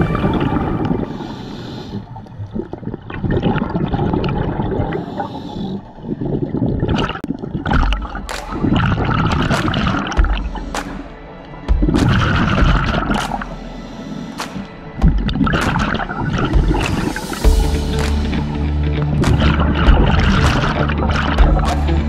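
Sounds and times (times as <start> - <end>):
exhaled bubbles rushing: 0.0 - 13.6, 14.6 - 22.0
regulator hissing inhale: 1.0 - 2.3, 4.9 - 6.0, 13.4 - 15.0.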